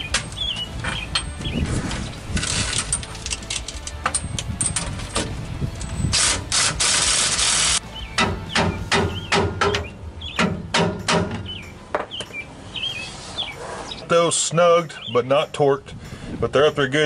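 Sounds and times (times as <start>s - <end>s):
metal clinking: 2.4s - 6.5s.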